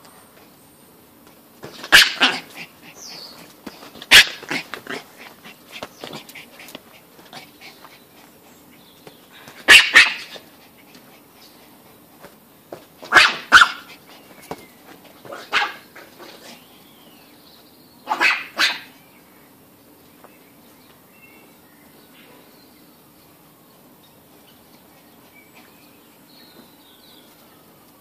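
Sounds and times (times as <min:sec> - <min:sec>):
dog barking: 0:01.9 - 0:02.4, 0:04.1 - 0:04.6, 0:09.7 - 0:10.4, 0:13.1 - 0:13.9, 0:15.3 - 0:15.8, 0:18.1 - 0:19.0.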